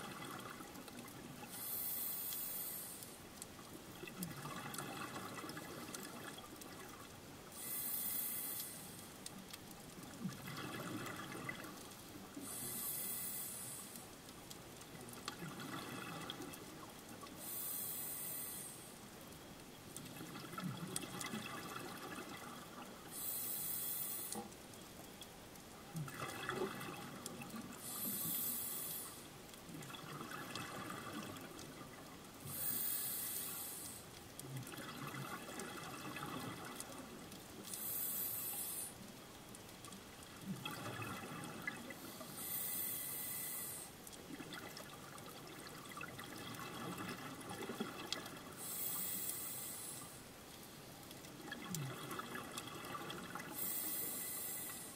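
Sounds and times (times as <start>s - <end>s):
hissing breath through regulator: 1.4s - 3.2s, 7.5s - 9.1s, 12.4s - 14.0s, 17.4s - 19.0s, 23.1s - 24.5s, 27.8s - 29.3s, 32.4s - 34.1s, 37.7s - 39.0s, 42.0s - 44.0s, 48.6s - 50.2s, 53.5s - 54.9s.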